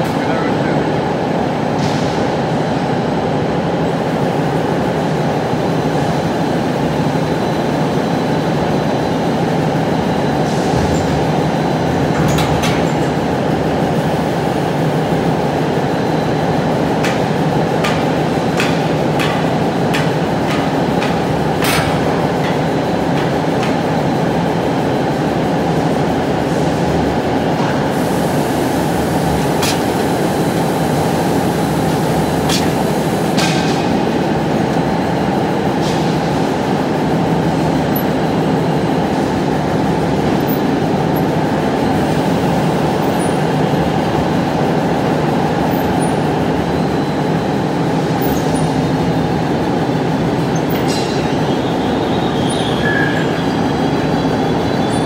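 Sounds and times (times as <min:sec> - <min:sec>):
loud machinery running: 0:00.0 - 0:55.0
sharp metallic clicks and knocks: 0:17.8 - 0:23.8.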